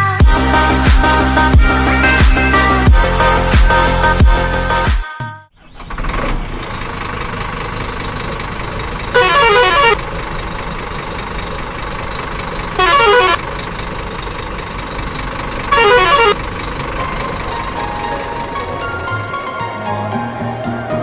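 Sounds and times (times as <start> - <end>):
truck engine running: 0.0 - 21.0
warbling multi-tone horn: 9.2 - 10.0, 12.8 - 13.4, 15.7 - 16.4.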